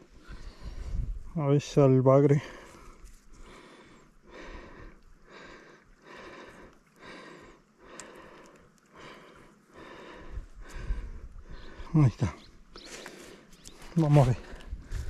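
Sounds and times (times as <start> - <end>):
person breathing hard: 0.0 - 1.3, 2.4 - 12.0, 12.8 - 15.0
faint tick: 7.9 - 8.9.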